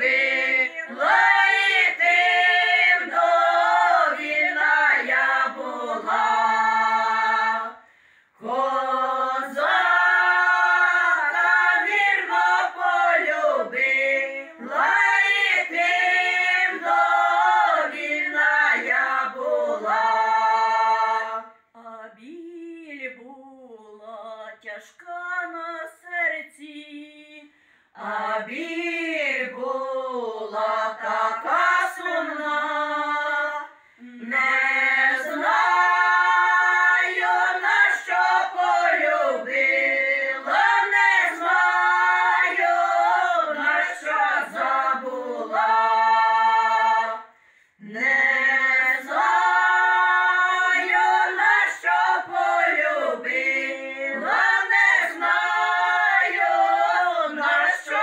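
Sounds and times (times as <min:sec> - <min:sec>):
women's choir singing a cappella: 0:00.0 - 0:58.0.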